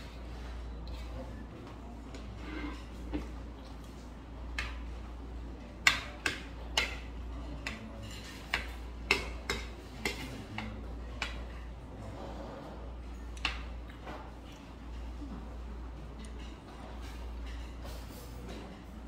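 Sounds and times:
metal utensils tapping ceramic bowl: 5.8 - 11.6.

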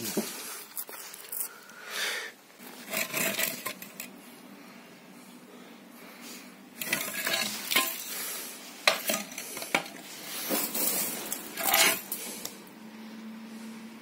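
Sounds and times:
tool scraping gritty mortar: 2.6 - 4.1, 6.8 - 8.1, 10.4 - 12.5.

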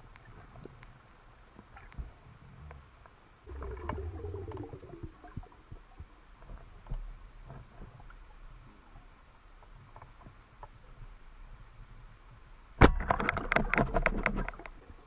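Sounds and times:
low wavering underwater rumble: 2.0 - 9.2
underwater clicks and knocks: 3.5 - 8.2, 12.8 - 15.0.

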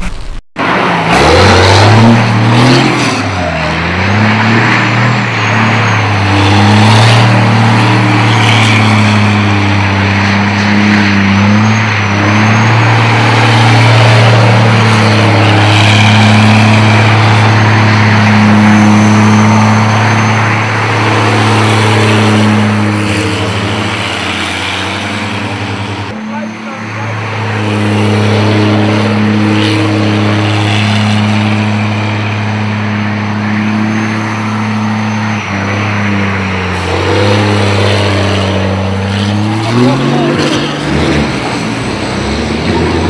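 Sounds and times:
diesel engine revving: 0.0 - 43.0.

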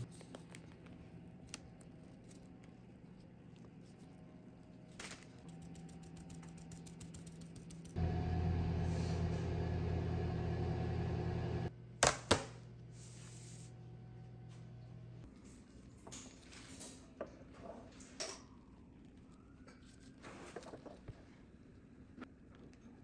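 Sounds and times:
oven fan humming: 7.9 - 15.3.

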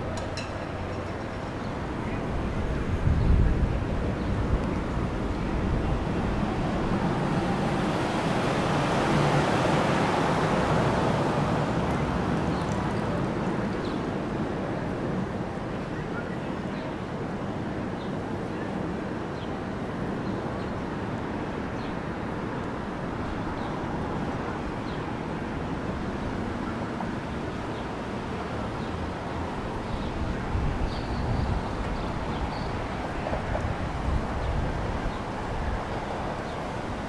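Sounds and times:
wind on microphone: 0.0 - 15.6, 29.1 - 37.0.

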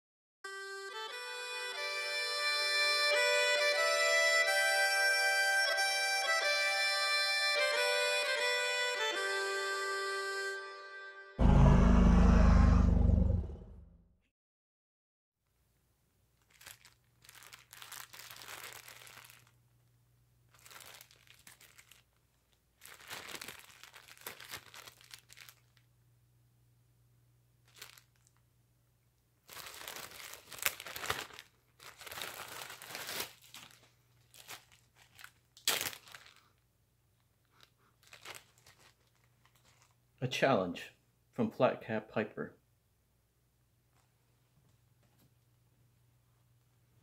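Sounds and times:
plastic bag crinkling: 16.3 - 19.7, 20.5 - 25.9, 27.6 - 28.4, 29.4 - 36.6, 37.2 - 40.0.

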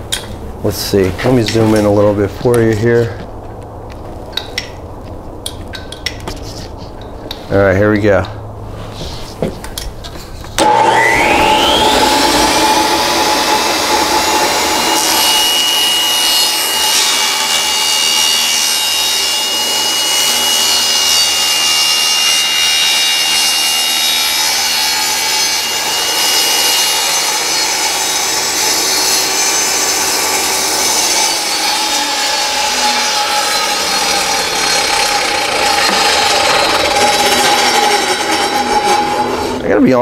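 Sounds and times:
table saw cutting plywood: 10.6 - 39.7.

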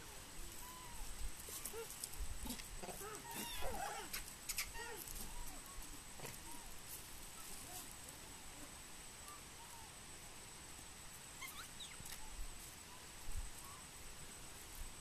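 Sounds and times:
high chirping animal calls: 11.4 - 12.1.

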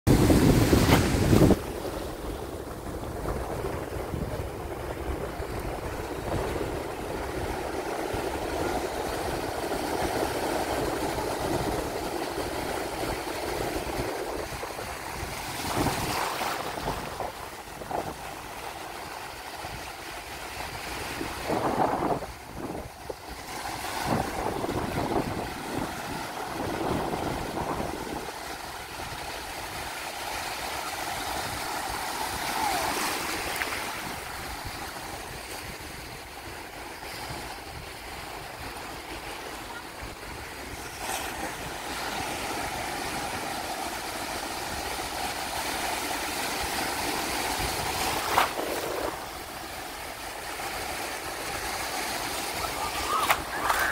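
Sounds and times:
wind rumbling on microphone: 0.1 - 30.0, 47.0 - 50.3, 52.4 - 53.9
small waves breaking: 0.1 - 53.9.

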